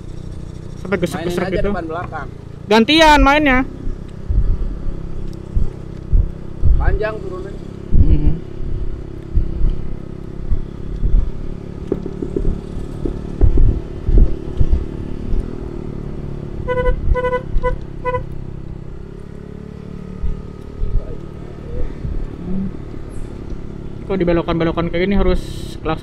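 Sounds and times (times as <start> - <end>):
scooter engine running: 0.0 - 26.0
thumps: 9.3 - 15.5
scooter horn beeps: 16.6 - 18.3, 25.4 - 25.9.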